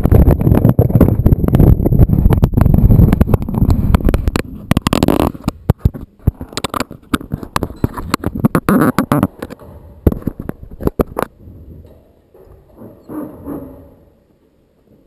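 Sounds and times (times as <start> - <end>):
rubbing on microphone: 0.0 - 11.8.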